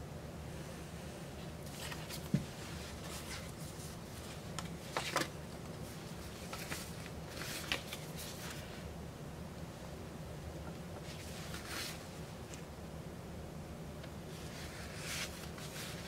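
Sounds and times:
gloved hands rustling plastic: 0:01.6 - 0:08.8.

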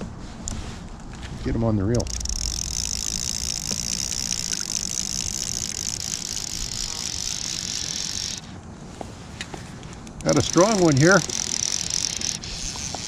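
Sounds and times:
fishing reel ratchet buzzing: 0:02.0 - 0:08.5, 0:10.2 - 0:13.0.

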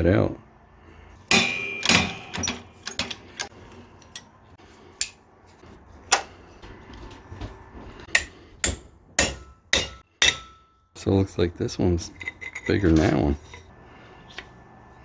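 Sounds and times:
metal parts and tools clanking: 0:01.3 - 0:04.4, 0:11.9 - 0:13.7.

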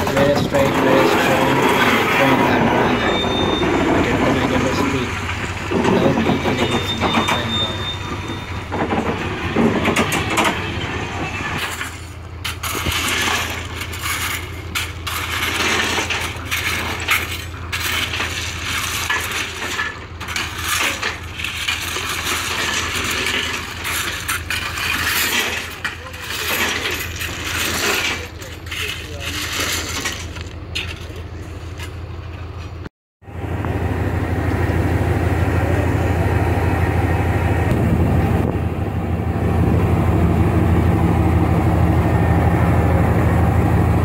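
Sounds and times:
rakes scraping loose stones: 0:00.0 - 0:32.8.

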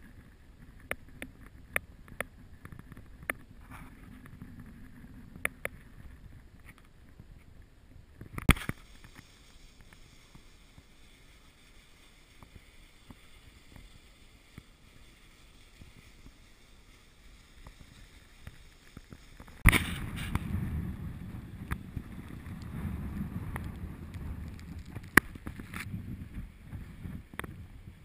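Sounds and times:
ski pole plants ticking: 0:00.0 - 0:28.0
skis scraping on snow: 0:08.4 - 0:28.0.

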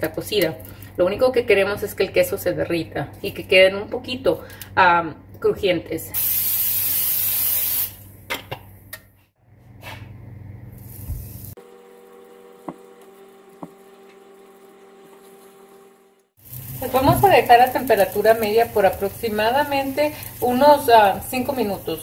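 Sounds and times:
cooking spray hissing into pan: 0:06.2 - 0:08.0, 0:10.8 - 0:11.6, 0:16.4 - 0:22.0.

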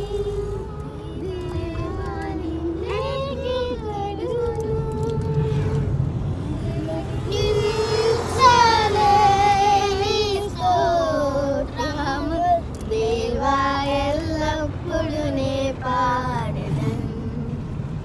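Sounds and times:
girl singing: 0:00.0 - 0:05.5
car cabin rumble: 0:00.0 - 0:18.0.

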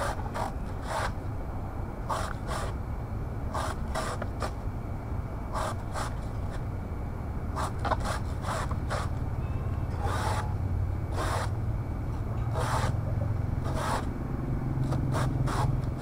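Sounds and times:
short scraping strokes: 0:00.0 - 0:01.2, 0:07.6 - 0:09.1, 0:09.9 - 0:10.5, 0:12.5 - 0:13.0, 0:13.6 - 0:14.1, 0:14.9 - 0:15.8
low steady hum: 0:00.0 - 0:16.0.

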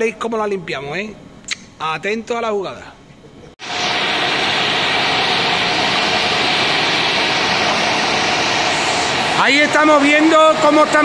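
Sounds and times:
electric fan blowing air: 0:03.6 - 0:11.0.

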